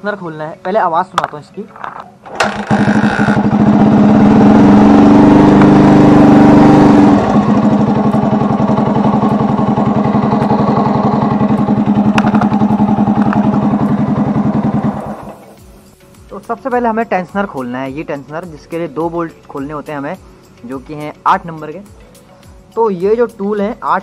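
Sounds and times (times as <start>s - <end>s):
motorcycle engine running: 2.4s - 15.8s.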